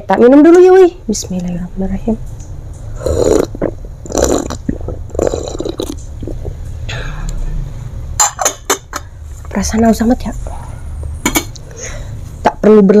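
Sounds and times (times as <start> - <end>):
person gulping from mug: 3.0 - 6.6
person breathing: 10.4 - 12.4.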